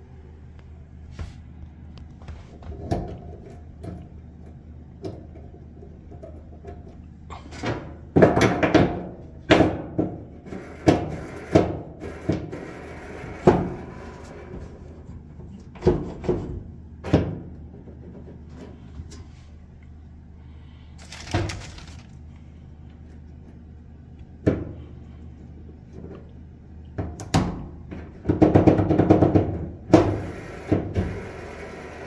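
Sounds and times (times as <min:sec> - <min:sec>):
steady low hum: 0:00.0 - 0:32.0
dryer roller knocking: 0:27.9 - 0:31.6.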